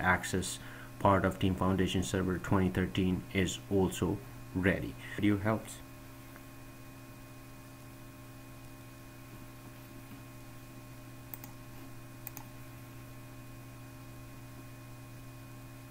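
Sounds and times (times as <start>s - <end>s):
low electrical hum: 0.0s - 15.9s
computer mouse clicks: 11.3s - 12.5s.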